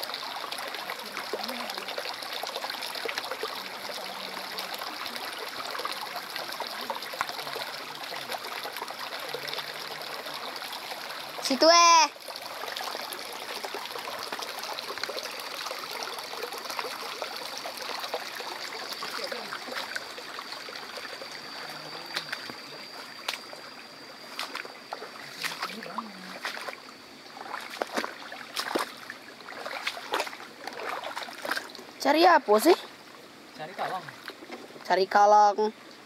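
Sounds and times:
small splashes: 0.0 - 32.0
stream trickling over stones: 0.0 - 36.0
thin high tone: 18.5 - 26.4.

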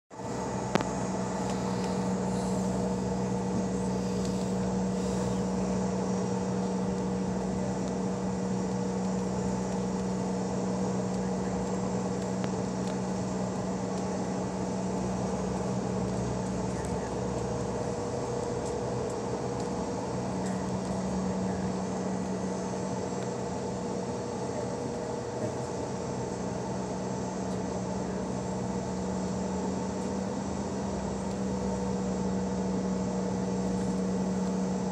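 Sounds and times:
jet cabin engine hum: 0.1 - 34.9.

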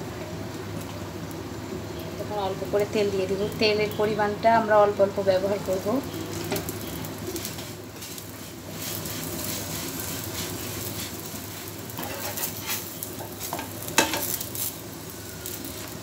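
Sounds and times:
oil sizzling in a frying pan: 0.0 - 16.0
metal turner scraping a pan: 7.3 - 14.7.

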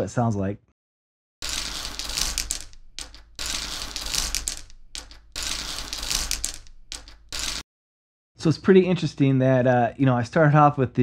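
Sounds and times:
small rocks grinding on plate: 1.4 - 7.6.

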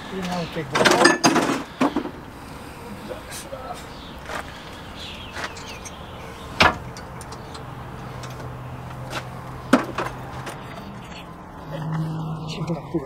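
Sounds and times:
metal tool clinking on metal: 0.8 - 1.4.

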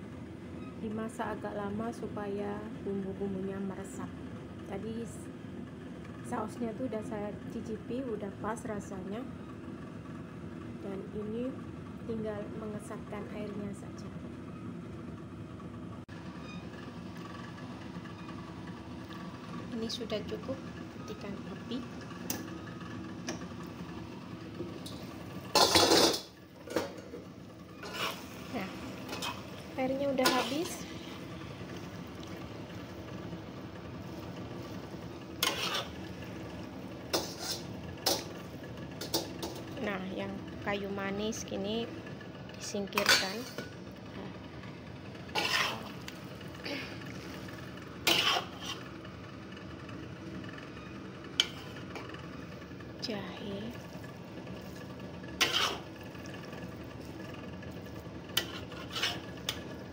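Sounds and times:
metal lid clattering on a wok: 24.8 - 27.1, 39.0 - 39.7
metal spatula scraping wok: 24.8 - 31.4, 34.0 - 36.4, 37.1 - 39.8, 42.9 - 43.7, 45.2 - 49.0, 51.4 - 52.5, 53.7 - 59.9
cookware clinking against a wok: 24.9 - 27.0, 42.9 - 43.7.

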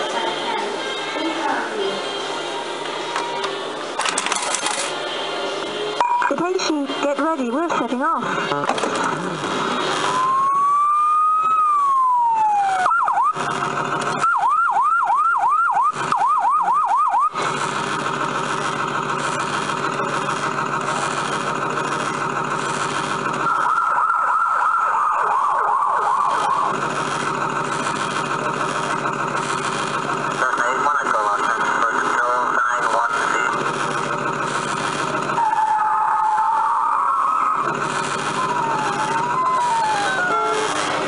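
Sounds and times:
electronic siren wail: 9.6 - 17.4, 23.4 - 28.0, 35.2 - 41.0
fast electronic siren yelp: 9.9 - 13.5, 14.1 - 17.4, 23.4 - 27.0, 35.3 - 41.0
layered electronic loop: 19.5 - 35.4, 37.6 - 41.0.

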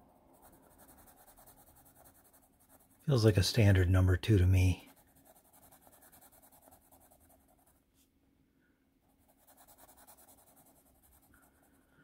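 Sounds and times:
pencil scratching on paper: 0.0 - 3.0, 4.3 - 7.8, 9.1 - 11.8.

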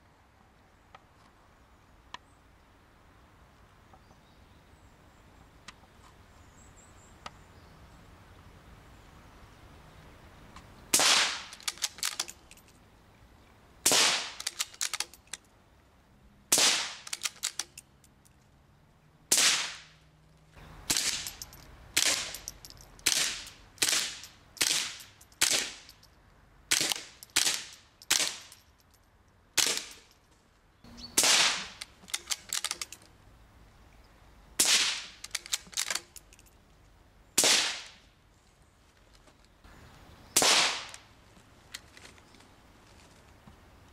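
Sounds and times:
rifle shots cracking: 11.0 - 12.4, 13.9 - 15.1, 16.5 - 17.7, 19.3 - 19.9, 20.9 - 21.4, 22.0 - 25.9, 26.7 - 28.5, 29.6 - 30.1, 31.2 - 32.9, 34.6 - 36.1, 37.4 - 38.0, 40.4 - 41.0.

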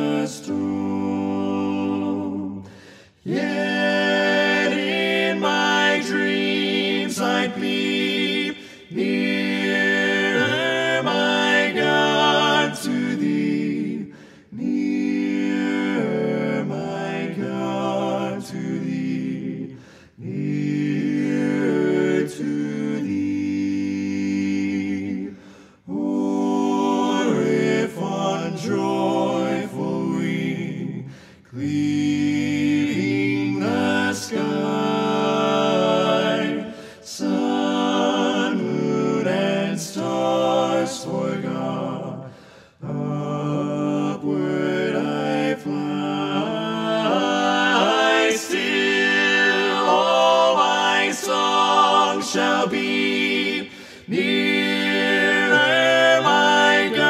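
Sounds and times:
voices singing in harmony: 0.0 - 57.0.

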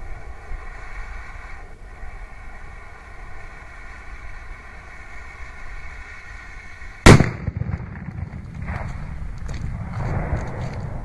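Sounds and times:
firecracker fuse hissing: 0.0 - 7.2
loud firecracker bang: 7.1 - 9.1
low rumbling echo: 7.1 - 11.0.

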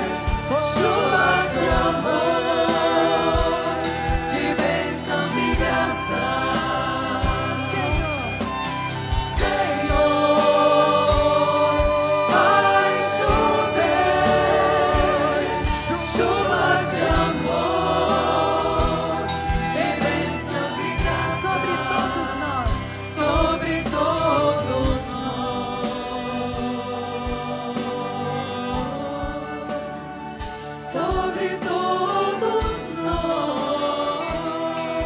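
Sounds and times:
choir and congregation singing hymn: 0.0 - 35.0.

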